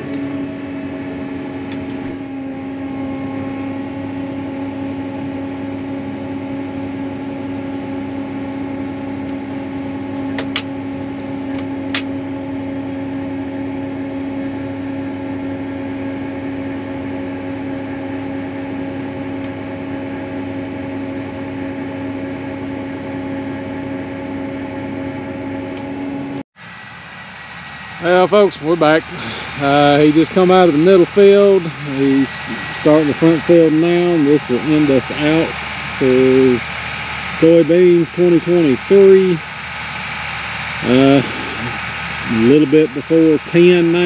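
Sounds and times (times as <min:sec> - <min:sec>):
tractor engine droning: 0:00.0 - 0:44.0.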